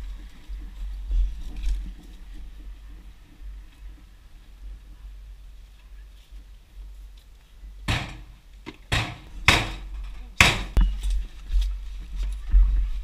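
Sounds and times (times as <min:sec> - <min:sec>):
heavy blows on a door: 0:07.8 - 0:10.9.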